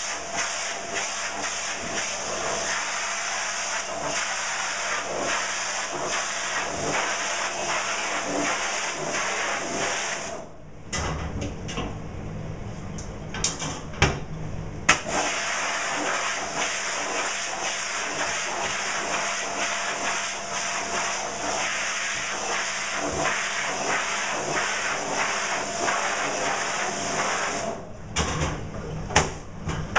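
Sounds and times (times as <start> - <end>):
pressure washer water jet hissing: 0.0 - 10.4, 15.0 - 27.7.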